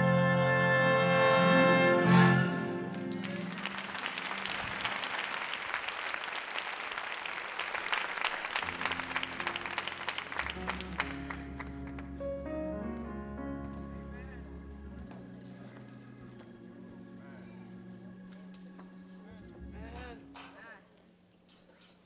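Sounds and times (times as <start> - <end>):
crowd applauding: 2.8 - 13.1
low instrumental notes: 8.7 - 20.8.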